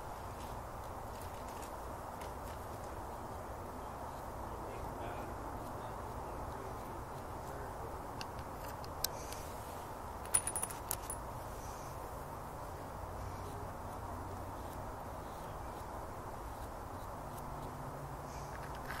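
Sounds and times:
steady background hiss: 0:00.0 - 0:19.0
metallic jingling: 0:10.2 - 0:11.2
light metallic clinks: 0:10.2 - 0:11.3.

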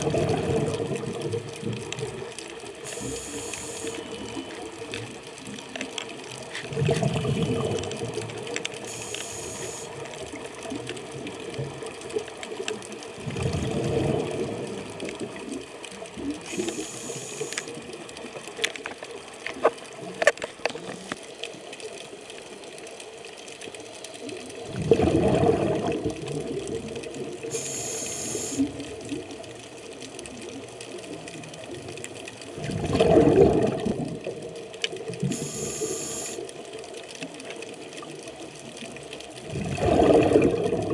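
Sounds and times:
exhaled bubbles: 0:00.0 - 0:18.3, 0:24.2 - 0:36.5, 0:37.8 - 0:40.9
regulator inhalation hiss: 0:02.9 - 0:04.2, 0:08.8 - 0:10.0, 0:16.5 - 0:17.7, 0:27.5 - 0:28.7, 0:35.3 - 0:36.4.

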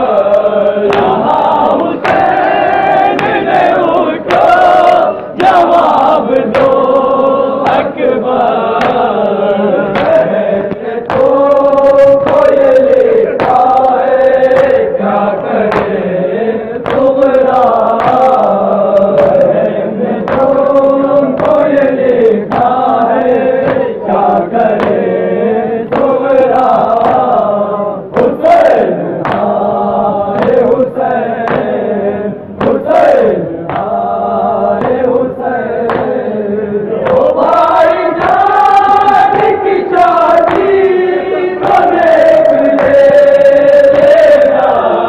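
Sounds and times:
men chanting in chorus: 0:00.0 - 0:45.0
chest-beating strikes: 0:00.8 - 0:07.0.

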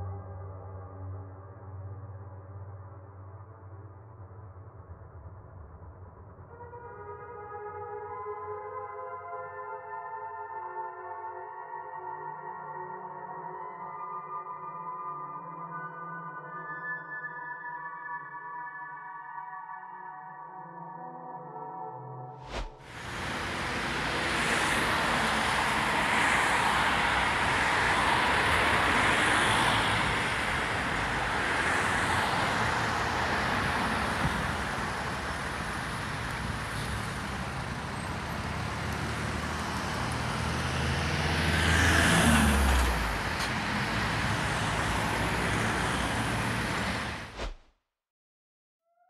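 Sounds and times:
road traffic hum: 0:22.5 - 0:47.6
vehicle passing: 0:22.5 - 0:47.6.

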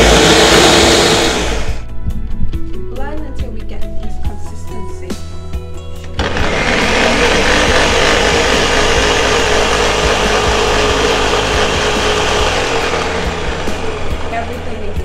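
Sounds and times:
blender running at high speed: 0:00.0 - 0:01.8, 0:06.2 - 0:15.0
background music: 0:00.0 - 0:15.0.

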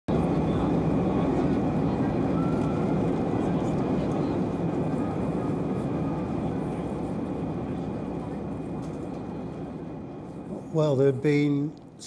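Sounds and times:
jet engine roar: 0:00.1 - 0:12.0.

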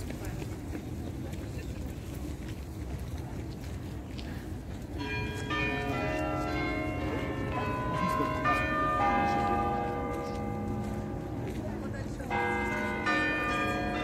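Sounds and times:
church bells chiming a tune: 0:04.8 - 0:14.0.

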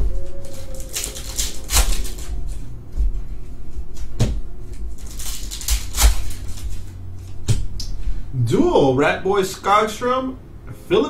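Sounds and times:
trading cards rustling: 0:00.4 - 0:02.6, 0:04.9 - 0:06.9.

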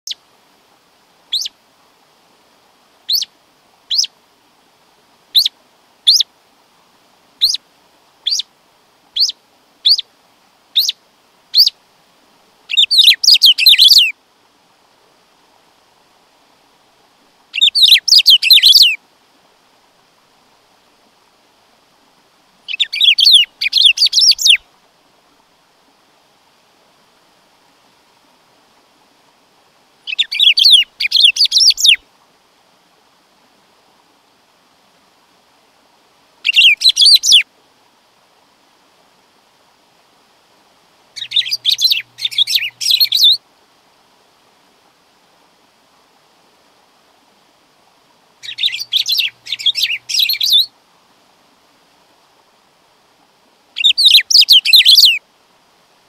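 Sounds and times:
bird whistling downward notes: 0:01.3 - 0:01.5, 0:12.7 - 0:14.1, 0:17.6 - 0:19.0, 0:22.7 - 0:24.6, 0:30.1 - 0:32.0, 0:36.5 - 0:37.4, 0:41.2 - 0:43.4, 0:48.4 - 0:50.7, 0:53.8 - 0:55.2.

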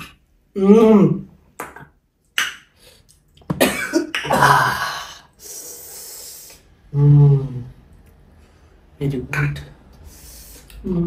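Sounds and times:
person humming: 0:04.2 - 0:07.8
person breathing in and out: 0:04.6 - 0:06.8, 0:10.0 - 0:10.8.

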